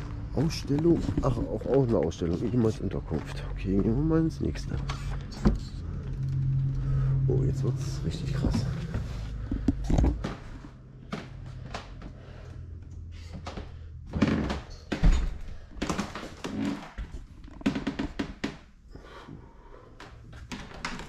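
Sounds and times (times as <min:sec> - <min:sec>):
low hum: 0:00.0 - 0:15.9
knocks clicks and thumps: 0:08.2 - 0:12.1.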